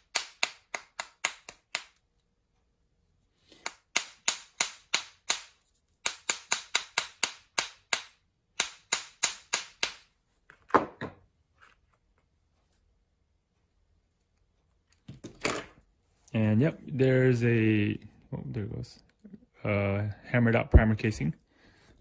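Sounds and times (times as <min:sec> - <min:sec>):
small hammer striking metal: 0:00.0 - 0:02.0, 0:03.6 - 0:10.1.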